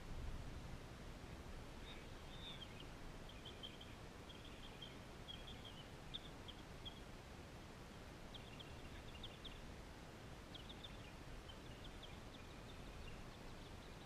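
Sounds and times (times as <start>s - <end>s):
outdoor background hum: 0.0s - 14.0s
birds chirping: 1.2s - 7.2s, 7.8s - 9.8s, 10.4s - 14.0s.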